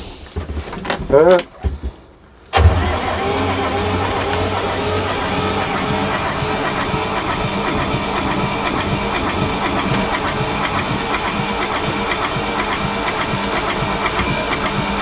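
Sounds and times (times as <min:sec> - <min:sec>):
diesel engine drone: 0:02.5 - 0:15.0
engine ticking knock: 0:03.8 - 0:15.0.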